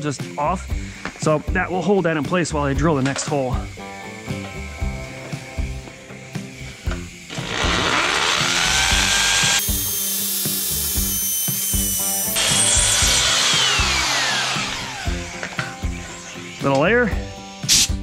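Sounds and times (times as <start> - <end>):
hammer drill boring into concrete: 6.9 - 16.8.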